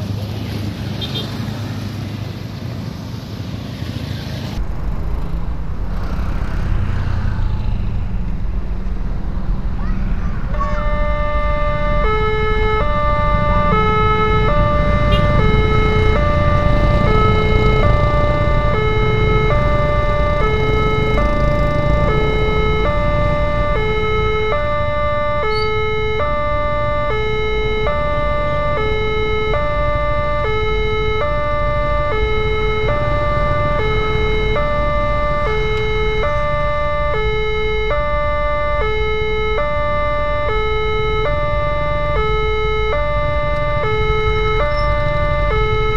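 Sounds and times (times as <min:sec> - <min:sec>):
motorcycle and car engines: 0:00.0 - 0:45.9
level crossing alarm chime: 0:10.6 - 0:45.9.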